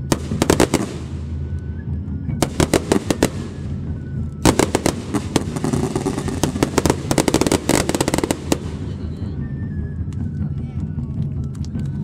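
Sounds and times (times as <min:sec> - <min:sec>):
fireworks crackling pops: 0:00.0 - 0:01.8, 0:02.4 - 0:09.3.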